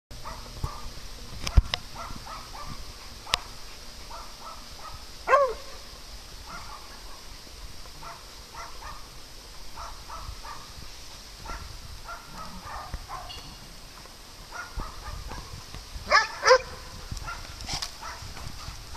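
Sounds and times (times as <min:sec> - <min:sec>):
steady hiss: 0:00.1 - 0:18.9
dog barking: 0:00.2 - 0:00.9, 0:01.5 - 0:03.5, 0:04.1 - 0:05.8, 0:06.5 - 0:07.3, 0:08.0 - 0:09.1, 0:09.8 - 0:10.7, 0:11.4 - 0:13.4, 0:14.5 - 0:15.5, 0:16.1 - 0:18.8
dogs playing: 0:11.4 - 0:13.3.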